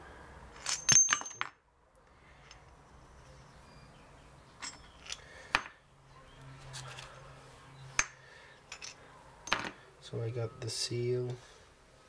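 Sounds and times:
metal parts clinking: 0.6 - 1.5, 4.6 - 5.7, 8.7 - 9.8.

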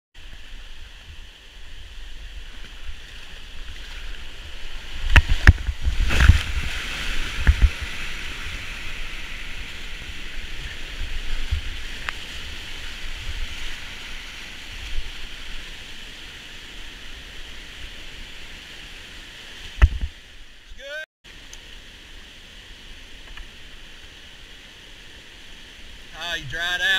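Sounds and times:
rushing whitewater: 0.2 - 26.9
kayak knocks and splashes: 5.0 - 8.7.

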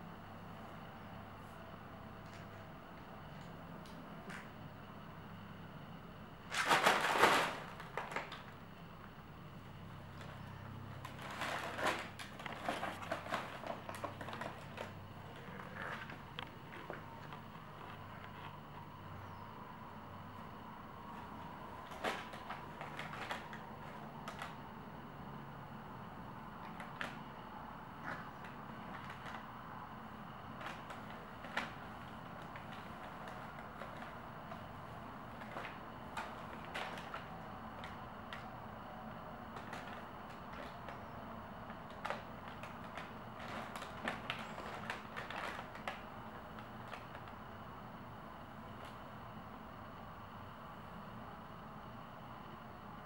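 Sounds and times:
paper crackling under cat's paws: 6.4 - 8.6, 9.8 - 18.6, 21.0 - 24.8, 26.6 - 27.4, 28.0 - 47.5.

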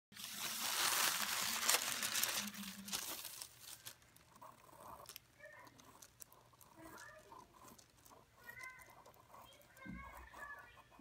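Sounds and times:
paper rustling and crinkling: 0.2 - 6.2.

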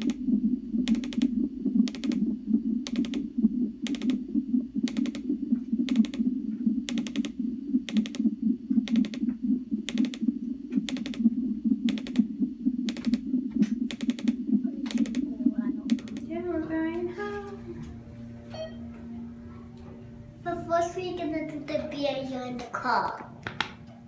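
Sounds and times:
rapid whooshing heartbeat pulse: 0.0 - 17.0
sharp ticks: 0.8 - 4.2, 4.8 - 6.3, 6.9 - 12.3, 12.9 - 15.2.

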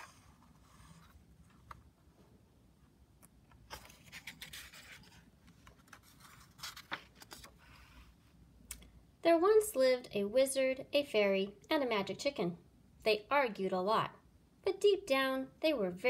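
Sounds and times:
paper page turning: 3.6 - 8.0.

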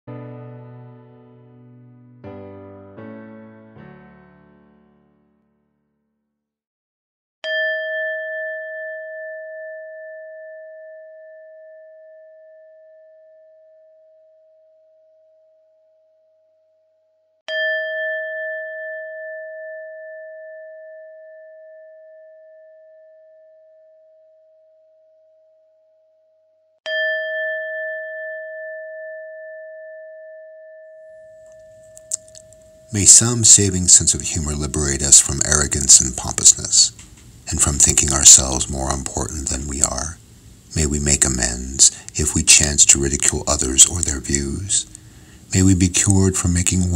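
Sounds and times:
meditation bell ringing: 7.4 - 14.5, 17.5 - 24.2, 26.9 - 33.4.

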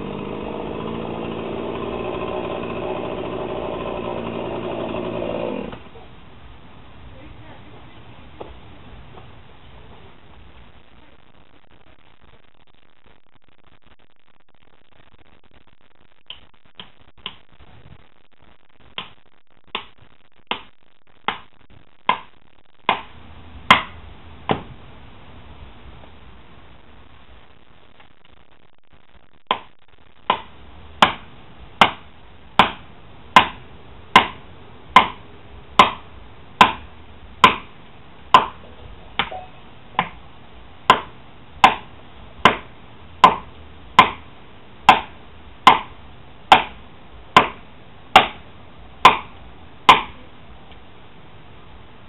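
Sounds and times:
blows struck into tree trunk: 30.3 - 35.2, 35.8 - 38.6, 40.9 - 44.3, 44.9 - 46.8, 47.4 - 48.4, 49.0 - 50.2.

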